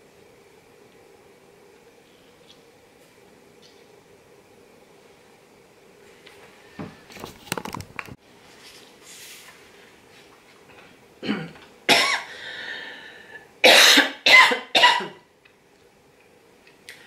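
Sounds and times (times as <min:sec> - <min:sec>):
woman coughing: 0:11.2 - 0:12.3, 0:13.6 - 0:15.2.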